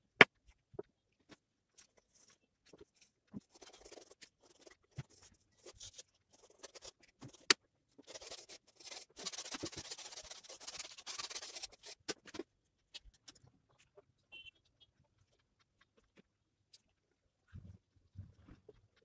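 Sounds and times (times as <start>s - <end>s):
paintbrush scratching on canvas: 3.4s - 7.4s, 8.1s - 12.1s.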